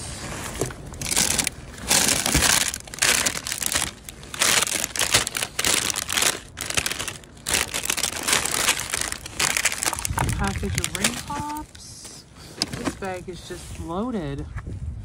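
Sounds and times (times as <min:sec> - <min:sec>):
plastic bags crinkling and rustling: 0:00.2 - 0:13.9.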